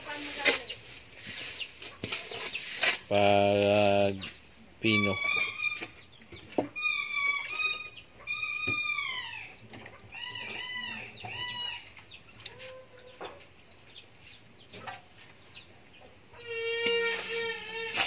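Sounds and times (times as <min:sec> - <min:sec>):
animal calling with high cries: 0:04.8 - 0:06.0, 0:06.7 - 0:11.9, 0:16.4 - 0:18.0.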